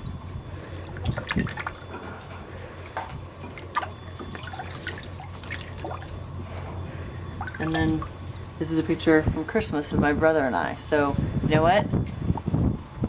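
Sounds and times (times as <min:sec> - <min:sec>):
steady low hum: 0:00.0 - 0:13.0
water splashing and dripping: 0:00.7 - 0:01.9, 0:03.5 - 0:06.2, 0:07.3 - 0:08.6.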